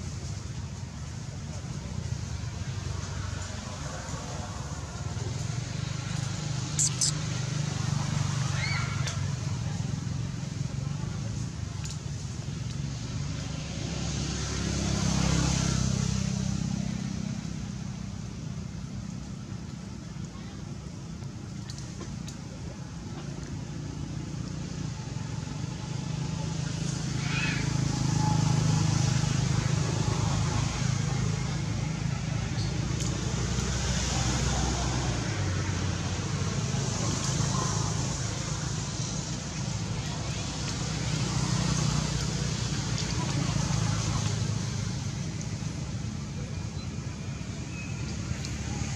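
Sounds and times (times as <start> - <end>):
vehicle engine hum: 0.0 - 48.9
road hiss: 23.8 - 48.9.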